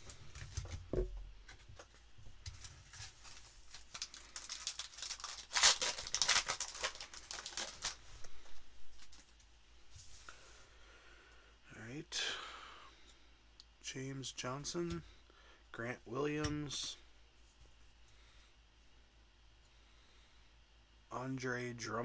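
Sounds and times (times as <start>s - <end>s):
foil wrapper tearing and crinkling: 2.6s - 8.0s.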